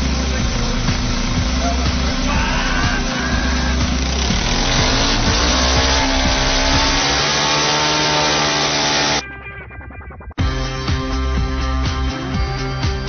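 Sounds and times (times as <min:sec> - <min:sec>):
small engine revving: 0:00.0 - 0:09.2.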